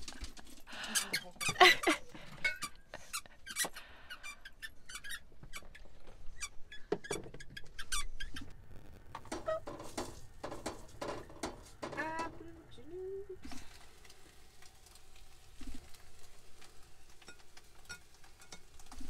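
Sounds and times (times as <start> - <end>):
squeaky toy squeaking: 3.1 - 5.6.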